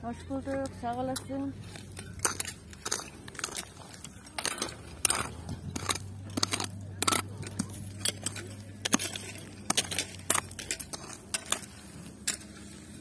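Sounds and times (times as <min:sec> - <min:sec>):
stones crunching and clinking: 0:00.4 - 0:13.0.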